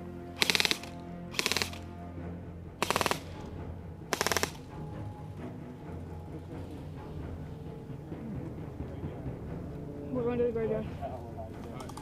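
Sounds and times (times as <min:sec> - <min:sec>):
background music: 0:00.0 - 0:12.0
airsoft rifle full-auto bursts: 0:00.4 - 0:01.8, 0:02.8 - 0:03.4, 0:04.1 - 0:04.6.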